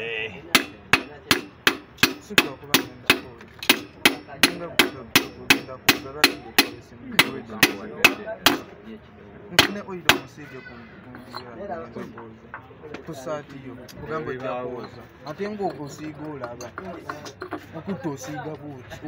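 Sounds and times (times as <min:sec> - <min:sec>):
hammer striking metal piston: 0:00.5 - 0:08.7, 0:09.6 - 0:10.4.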